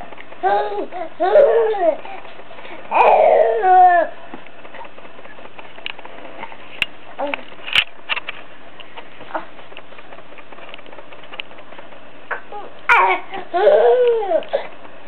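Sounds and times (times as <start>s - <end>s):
baby babbling: 0.4s - 2.0s, 2.9s - 4.1s, 12.3s - 14.4s.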